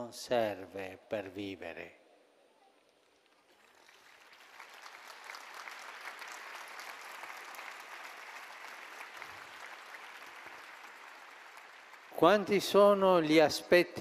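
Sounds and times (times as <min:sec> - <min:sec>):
large crowd applauding: 0:03.1 - 0:13.4.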